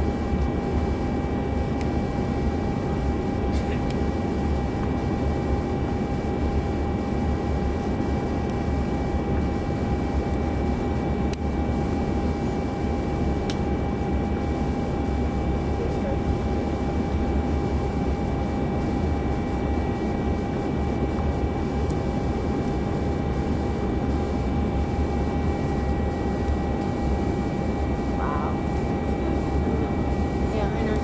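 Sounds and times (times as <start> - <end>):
steady whining tones: 7.6 - 31.0.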